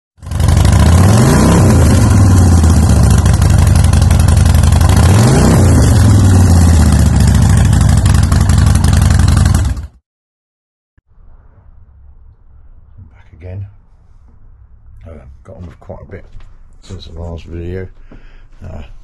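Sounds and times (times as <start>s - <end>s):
motorcycle engine idling and revving: 0.2s - 10.0s.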